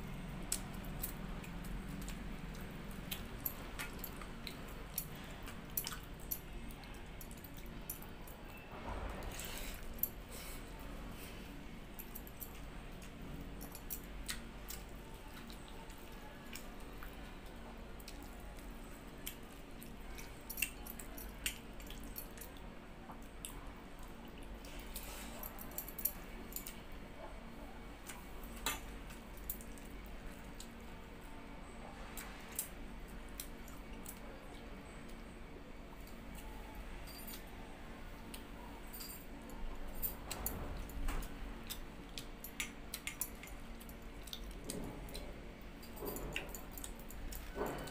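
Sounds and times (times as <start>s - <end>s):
steady low hum: 0.0s - 47.9s
chewing: 0.4s - 8.6s, 12.4s - 27.4s, 40.3s - 47.9s.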